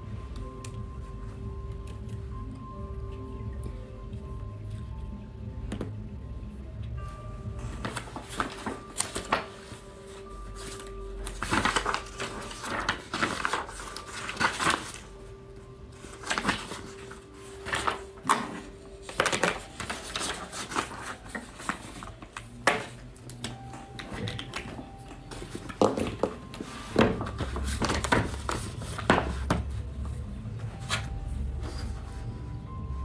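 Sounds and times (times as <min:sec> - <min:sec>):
quiet background music: 0:00.0 - 0:33.0
paper sheets rustling: 0:07.6 - 0:15.3, 0:15.9 - 0:32.3.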